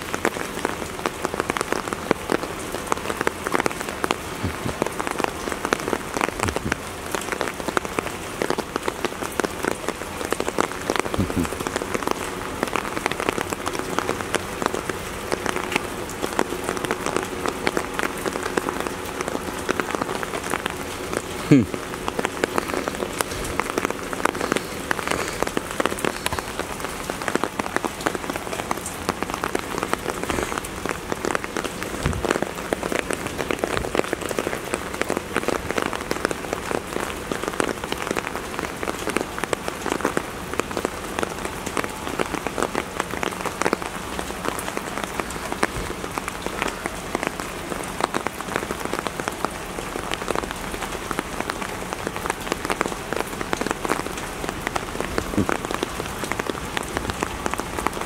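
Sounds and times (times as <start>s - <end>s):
raindrops clicking: 0.0s - 58.0s
steady rain falling: 0.0s - 58.0s.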